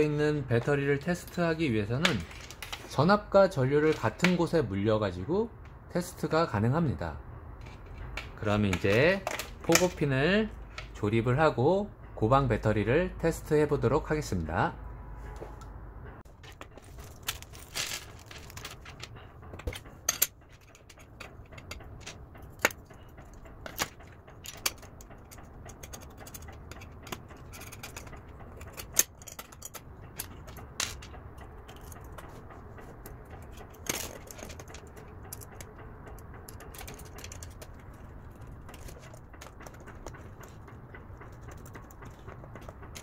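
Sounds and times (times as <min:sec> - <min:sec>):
small metal parts clicking: 0:16.3 - 0:43.0.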